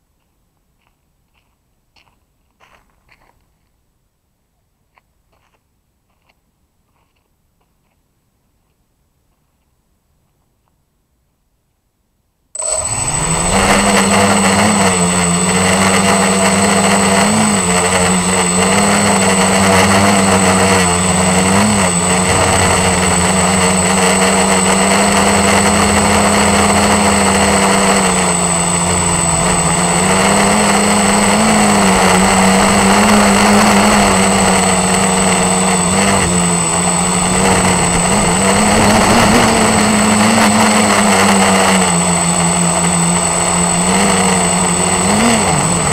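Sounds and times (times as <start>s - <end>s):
quadcopter motors humming: 12.6s - 45.9s
thin high whine: 12.6s - 45.9s.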